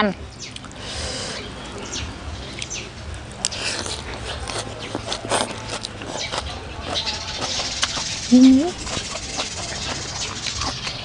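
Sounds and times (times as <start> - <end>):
chewing and biting food: 3.4 - 11.0
mouth clicks: 3.4 - 11.0.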